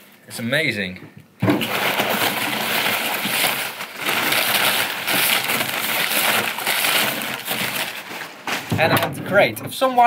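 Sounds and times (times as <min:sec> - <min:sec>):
packing paper crinkling: 0:01.5 - 0:08.8.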